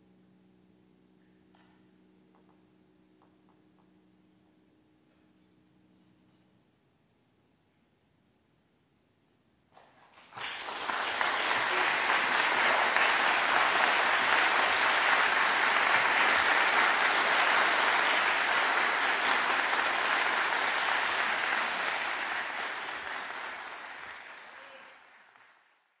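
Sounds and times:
audience applauding: 9.8s - 26.0s.

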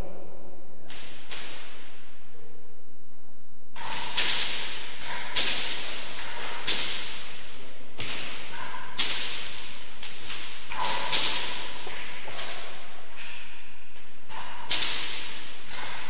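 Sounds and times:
ball cracking off rackets and walls: 3.7s - 16.0s
shoe squeaking on floor: 6.2s - 9.0s, 13.1s - 14.0s.

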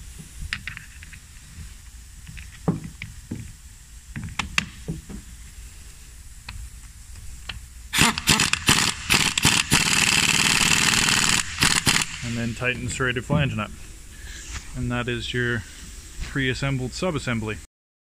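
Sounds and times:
impact wrench bursts: 7.9s - 13.0s.

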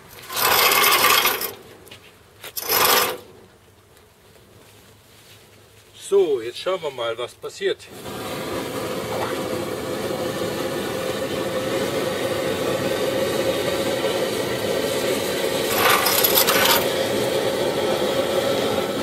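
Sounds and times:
pressure burner rushing: 0.0s - 1.7s, 7.9s - 19.0s.

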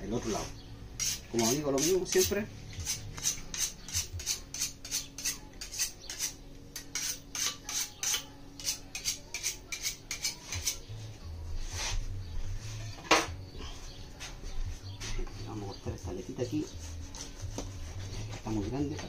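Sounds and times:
knife scraping: 1.0s - 10.9s.

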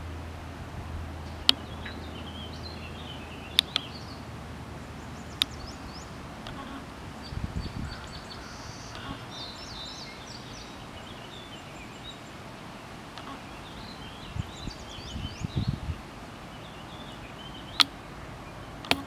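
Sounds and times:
low rumbles: 0.0s - 19.0s
small birds chirping: 1.2s - 19.0s.

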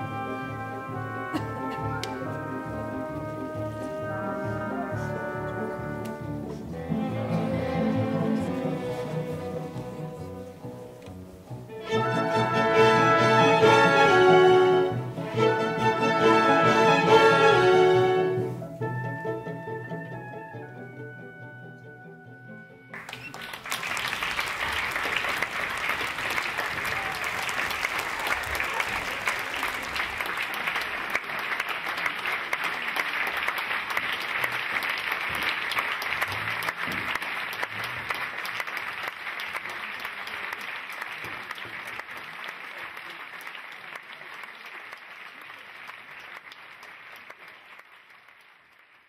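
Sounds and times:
large audience applauding: 22.9s - 49.0s.

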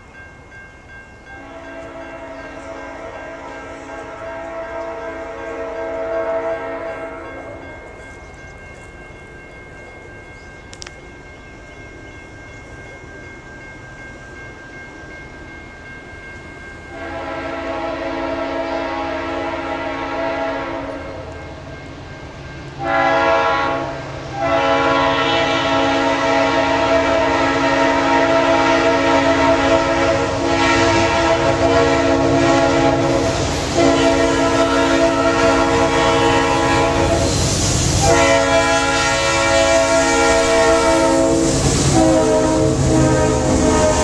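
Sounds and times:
diesel locomotive horn blasts: 1.3s - 7.8s, 16.9s - 21.4s, 22.8s - 44.0s.

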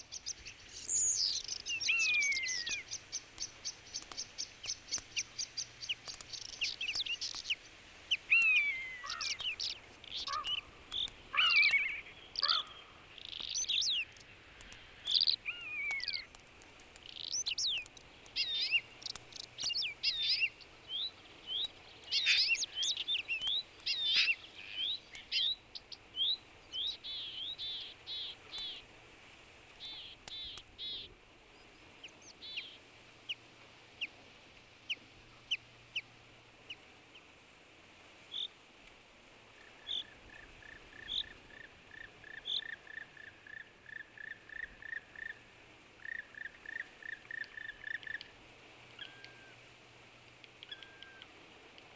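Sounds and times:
small birds chirping and whistling: 0.0s - 16.4s, 17.0s - 28.8s, 29.8s - 31.1s, 49.0s - 49.6s, 50.6s - 51.3s.

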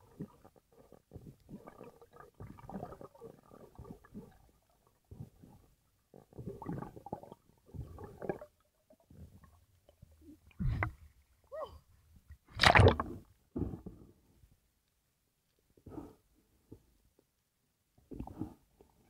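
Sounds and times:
underwater gurgling and bubbling: 0.0s - 9.5s.

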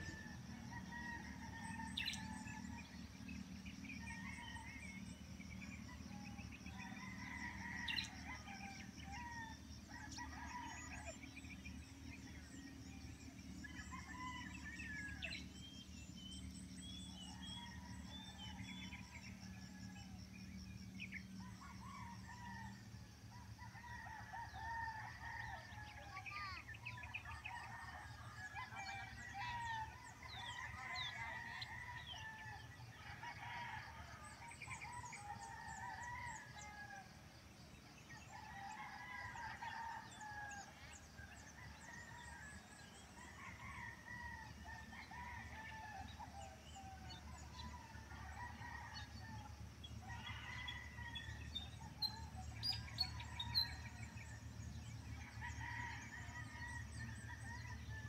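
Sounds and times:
faint roosters crowing: 38.0s - 58.0s.

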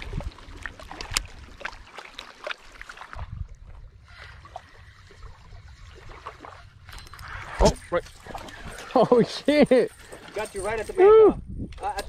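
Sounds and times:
wind rumbling on microphone: 0.0s - 1.9s, 3.1s - 8.8s, 10.6s - 12.0s
water lapping at rocky shore: 0.0s - 11.2s.

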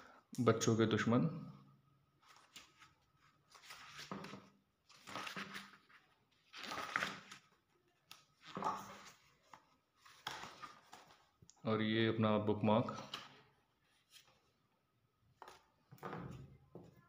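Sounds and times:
pages rustling: 2.2s - 11.4s, 15.4s - 16.2s.

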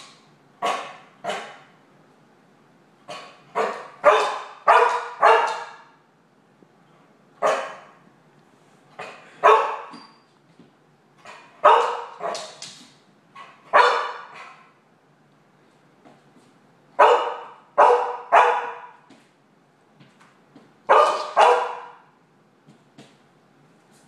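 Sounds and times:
dog barking: 0.6s - 1.7s, 3.1s - 5.9s, 7.4s - 8.0s, 9.0s - 9.9s, 11.3s - 12.5s, 13.7s - 14.6s, 17.0s - 19.0s, 20.9s - 22.1s.

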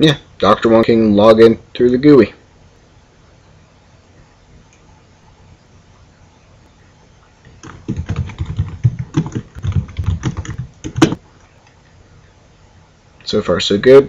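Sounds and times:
computer keyboard typing: 7.5s - 11.2s.

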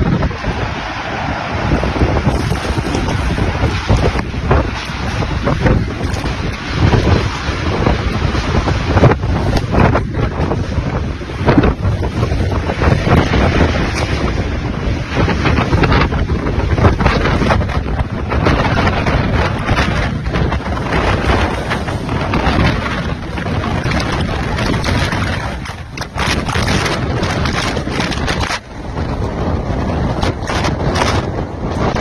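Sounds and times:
storm wind on microphone: 0.0s - 32.0s.

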